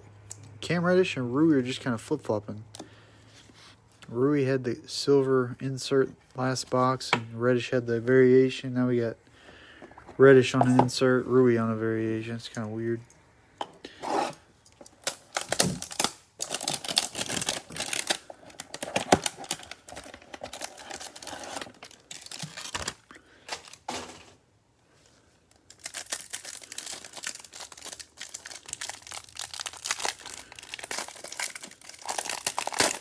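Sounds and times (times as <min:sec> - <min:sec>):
cellophane wrapper crinkling: 0:14.7 - 0:23.9, 0:25.5 - 0:33.0.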